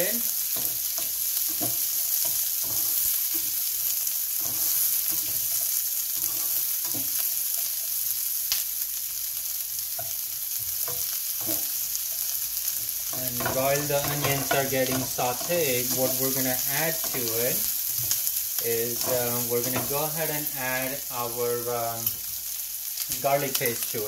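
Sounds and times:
onions sizzling in frying pan: 0.0 - 24.0
spatula scraping and tapping: 0.5 - 3.6, 4.4 - 7.2, 10.0 - 11.8, 12.8 - 20.4.

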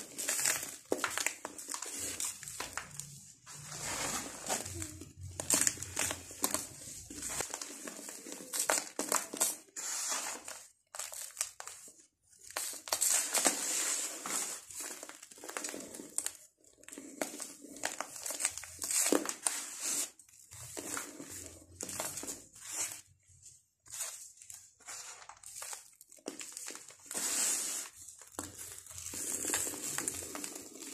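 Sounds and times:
sand-cement mix crunching by hand: 0.0 - 11.9, 26.2 - 30.9.

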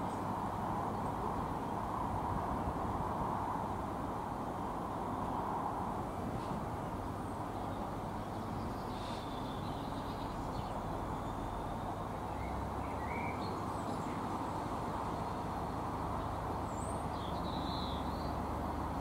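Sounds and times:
diesel locomotive engine rumble: 0.0 - 19.0
birds chirping faintly: 7.2 - 18.5.

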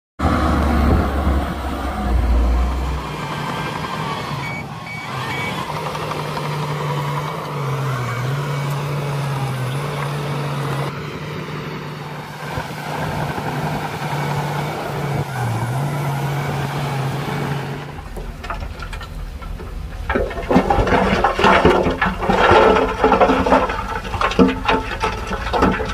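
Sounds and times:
bulldozer diesel engine running: 0.2 - 25.9
heavy machinery rumble: 0.2 - 25.9
high beeps: 4.4 - 5.6.

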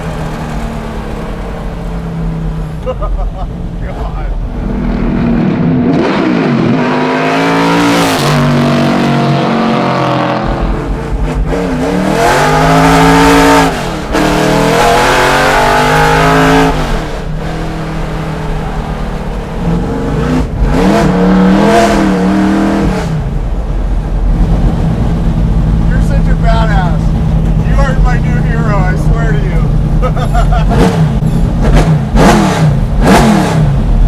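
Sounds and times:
race car engine accelerating: 4.0 - 23.5, 27.0 - 34.0.

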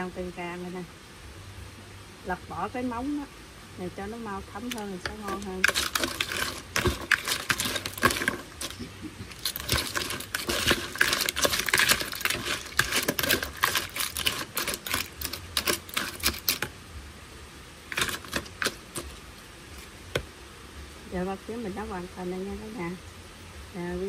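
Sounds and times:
utensils clattering on crab shells: 4.6 - 16.7, 17.9 - 19.2.

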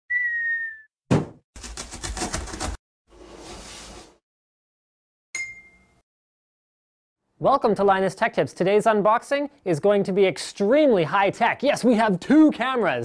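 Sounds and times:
sharp thump: 1.1 - 1.4
bright ding: 5.4 - 6.0.

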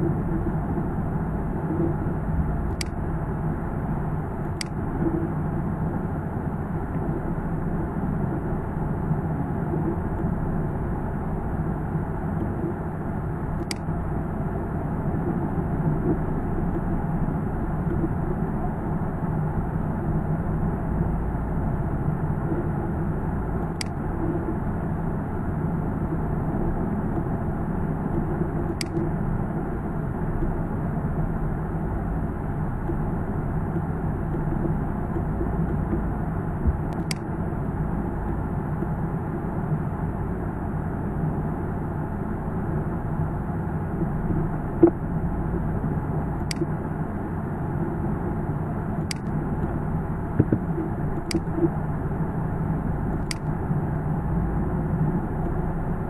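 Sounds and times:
low background rumble and hiss: 0.0 - 56.0
faint sharp click: 2.7 - 3.0, 4.4 - 4.8, 13.6 - 13.9, 23.7 - 24.0, 28.1 - 29.1, 36.9 - 37.3, 46.4 - 46.7, 49.0 - 49.4, 50.4 - 51.7, 53.1 - 53.5.

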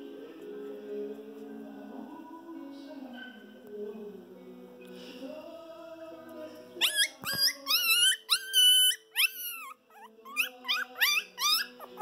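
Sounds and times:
soft background music: 0.0 - 12.0
puppy whimpering: 6.8 - 12.0.

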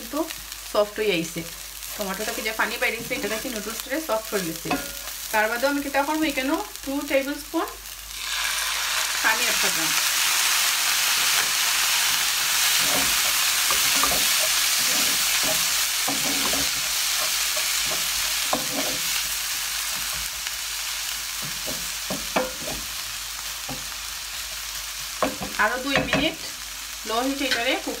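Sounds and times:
water sizzling in hot pan: 0.0 - 28.0
wooden spoon scraping pan: 12.6 - 19.3.

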